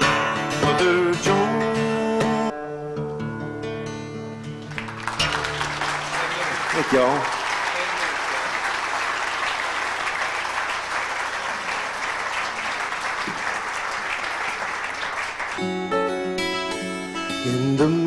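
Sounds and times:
music: 0.0s - 6.6s, 15.5s - 18.0s
audience applauding: 4.6s - 16.5s.

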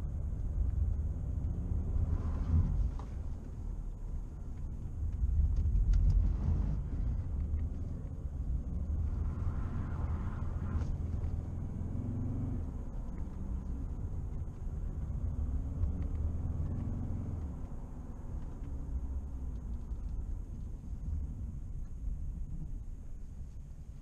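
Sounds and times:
road noise: 0.0s - 24.0s
diesel engine revving: 8.4s - 13.9s.

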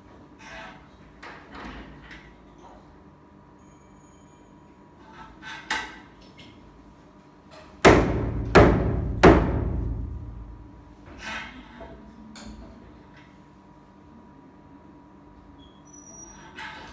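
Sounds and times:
hard knocks on acrylic block: 7.8s - 10.1s.

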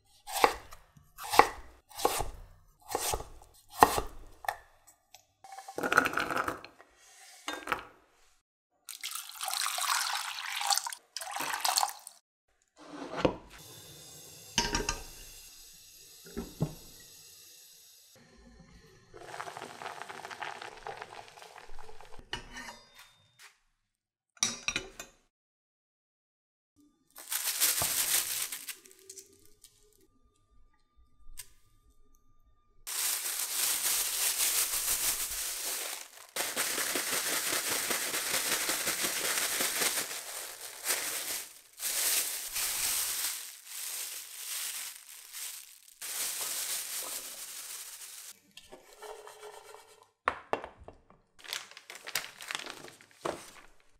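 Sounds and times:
plastic bag crinkling: 27.2s - 29.8s, 32.9s - 48.4s, 51.4s - 53.9s.

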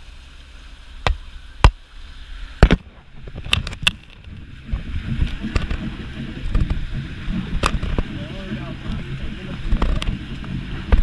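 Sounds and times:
low engine rumble: 0.0s - 11.0s
water rushing along hull: 0.0s - 11.0s
sharp knocks: 2.6s - 11.0s.

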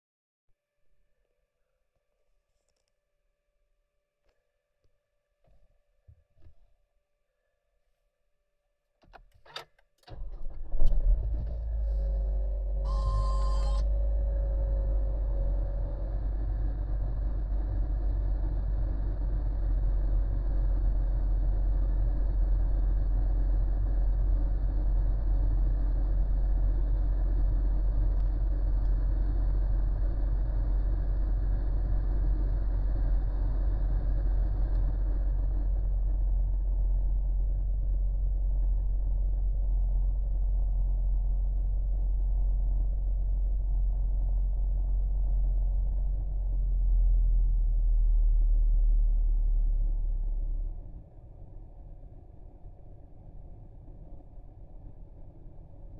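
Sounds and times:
car engine idling: 11.1s - 47.3s.

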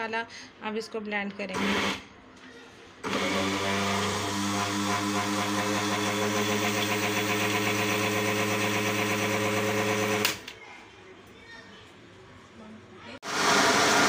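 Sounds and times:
blender motor grinding: 1.5s - 2.0s, 3.0s - 10.4s, 13.2s - 14.0s.

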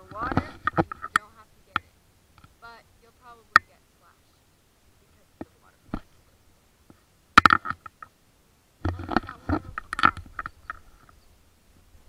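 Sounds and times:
camera housing knocks and scrapes: 8.8s - 11.2s.

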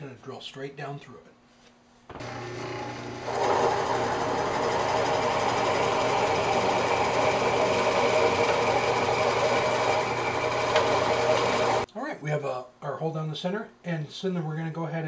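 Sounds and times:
drill press boring into wood: 2.1s - 11.9s.

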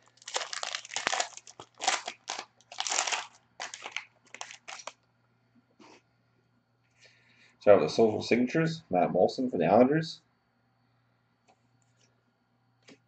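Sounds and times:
foil wrapper crinkling: 0.0s - 5.0s.

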